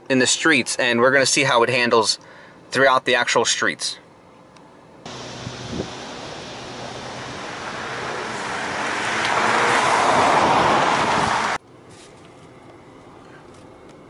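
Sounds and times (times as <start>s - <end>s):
car driving past: 5.1s - 11.6s.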